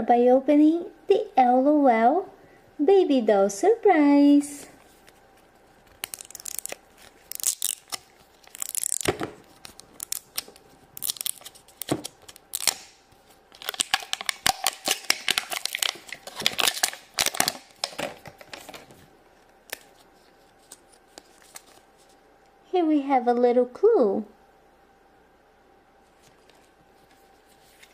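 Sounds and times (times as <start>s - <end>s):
plastic wrapping crinkling and tearing: 4.8s - 22.2s.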